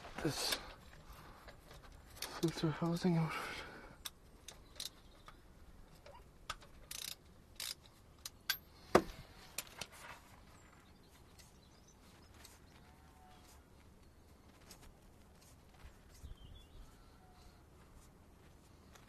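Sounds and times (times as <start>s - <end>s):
light clicks of hands and tool: 4.0s - 8.7s, 11.2s - 12.8s.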